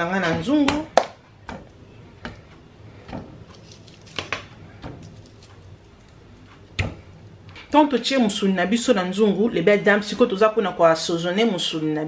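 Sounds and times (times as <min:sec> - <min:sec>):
meat thudding into metal pot: 0:00.3 - 0:02.4.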